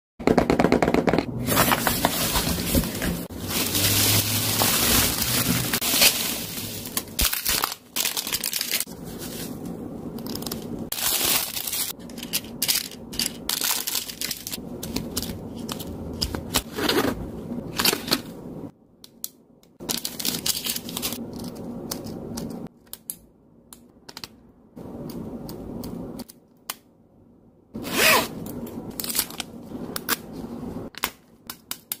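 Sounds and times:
packaging rustling and crinkling: 0:01.4 - 0:15.9.

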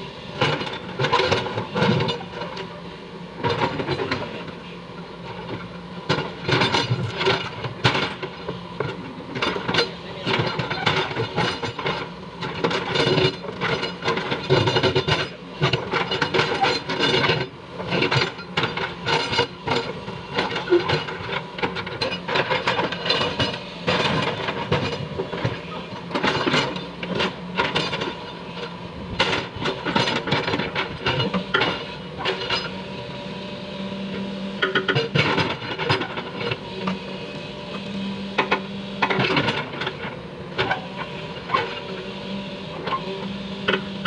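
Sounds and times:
excavator engine hum: 0:00.0 - 0:44.0.

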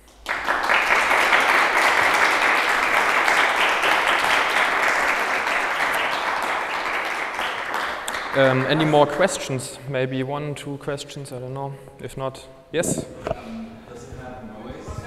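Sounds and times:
small audience applauding: 0:00.0 - 0:09.6.

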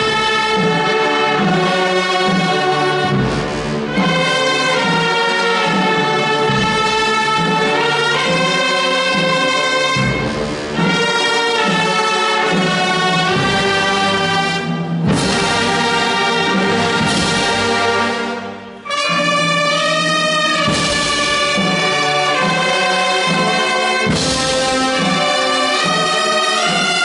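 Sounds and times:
wind band playing held chords: 0:00.0 - 0:27.0.

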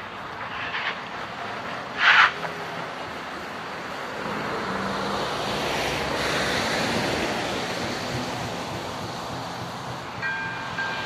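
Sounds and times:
car passing: 0:00.0 - 0:11.0.

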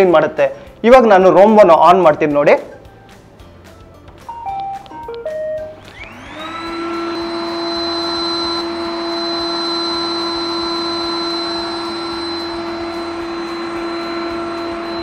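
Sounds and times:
robot vacuum motor whine: 0:05.7 - 0:15.0.

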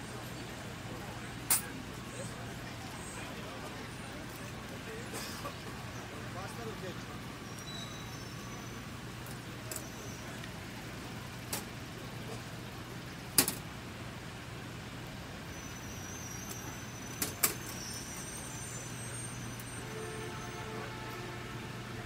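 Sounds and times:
traffic rumble: 0:00.0 - 0:22.0
faint high squeals: 0:07.3 - 0:08.9, 0:15.4 - 0:21.4.

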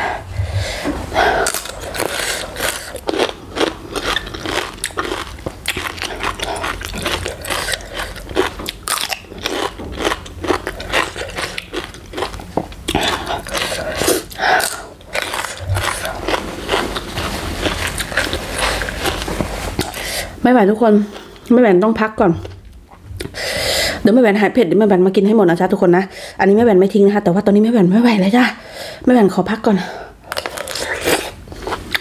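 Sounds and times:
crunching raw cucumber: 0:01.4 - 0:20.0.

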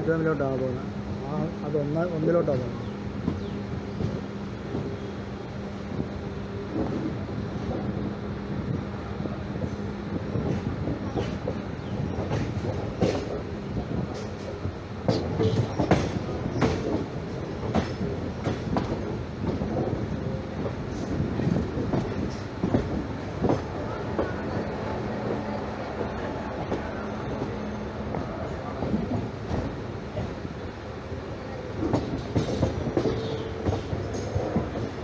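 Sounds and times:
train wheels rumbling: 0:00.0 - 0:35.0
wheels clacking over rail joints: 0:09.6 - 0:30.5, 0:31.4 - 0:35.0.

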